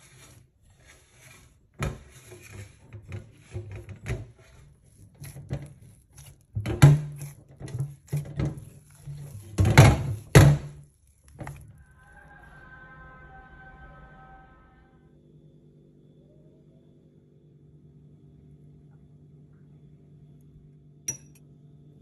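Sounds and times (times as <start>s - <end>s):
hand kneading dough in glass bowl: 0.0s - 12.0s.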